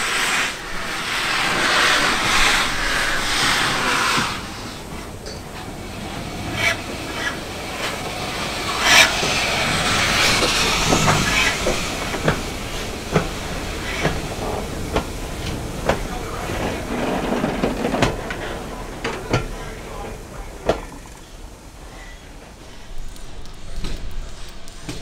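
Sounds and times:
hissing steam: 0:00.0 - 0:25.0
steam locomotive exhaust beat: 0:00.0 - 0:25.0.

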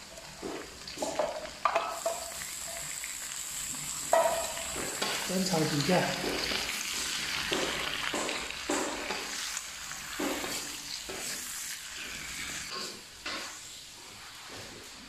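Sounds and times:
fruit sizzling in fat in a wok: 0:00.0 - 0:15.0
wooden spatula scraping wok: 0:04.1 - 0:15.0.

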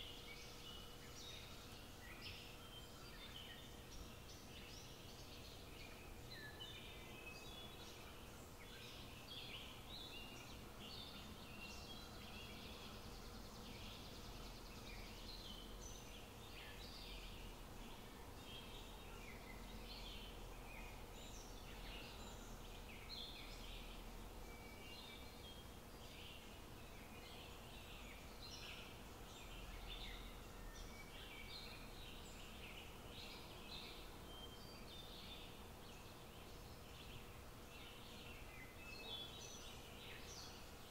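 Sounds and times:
small birds chirping: 0:00.0 - 0:40.9.

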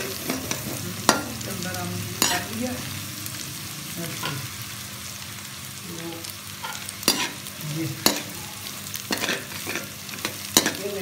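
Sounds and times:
food sizzling in hot oil: 0:00.0 - 0:11.0
metal spoon scraping a pan: 0:02.2 - 0:02.6, 0:06.5 - 0:11.0.

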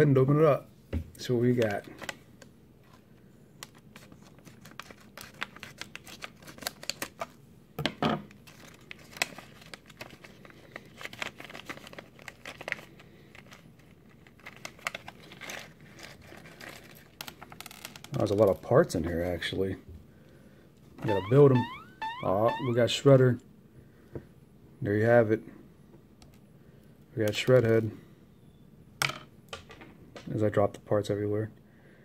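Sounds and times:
plastic wrapper crinkling and tearing: 0:03.6 - 0:07.4, 0:08.3 - 0:18.7.

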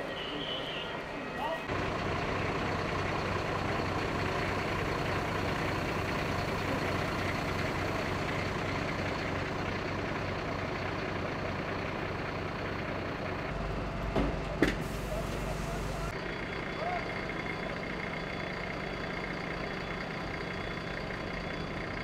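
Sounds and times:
heavy vehicle engine idling: 0:00.0 - 0:22.0.

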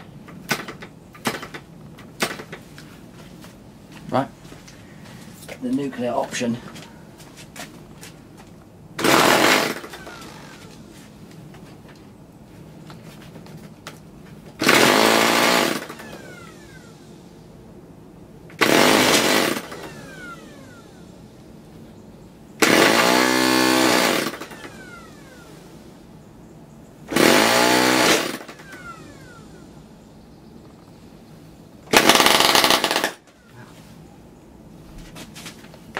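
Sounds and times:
low outdoor background: 0:00.0 - 0:35.9
electric starter spinning engine: 0:09.0 - 0:10.8, 0:14.6 - 0:17.2, 0:18.6 - 0:21.1, 0:22.6 - 0:25.6, 0:27.1 - 0:29.7, 0:31.9 - 0:33.2.

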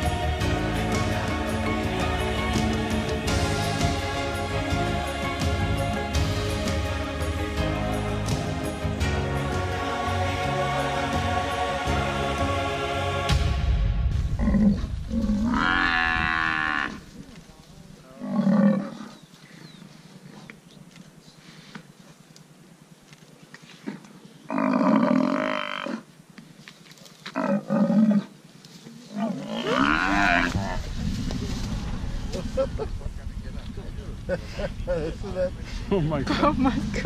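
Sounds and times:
buffalo bellowing in distress: 0:15.4 - 0:17.1, 0:29.2 - 0:30.7.

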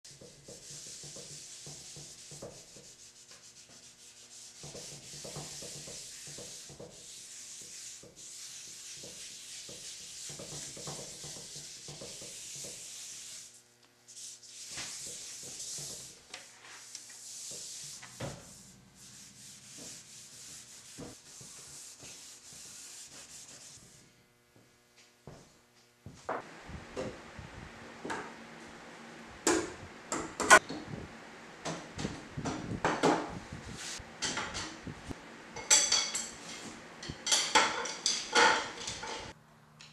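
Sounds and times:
hand-sanding strokes on wood: 0:00.1 - 0:24.0.

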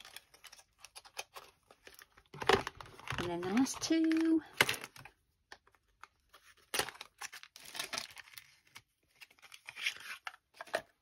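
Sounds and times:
packaging crinkling and tearing: 0:00.0 - 0:10.9.

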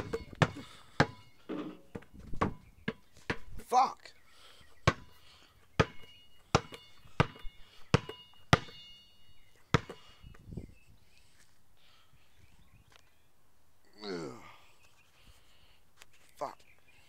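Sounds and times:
basketball bouncing on pavement: 0:00.0 - 0:03.6, 0:04.8 - 0:09.0, 0:09.7 - 0:10.1.

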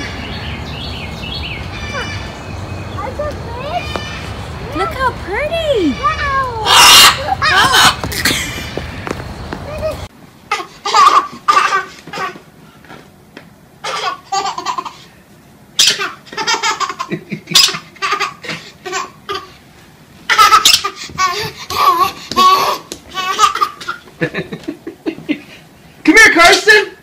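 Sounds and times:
toddler laughing: 0:05.9 - 0:08.8, 0:09.6 - 0:12.4, 0:13.8 - 0:15.1, 0:15.8 - 0:19.6, 0:20.3 - 0:25.5.

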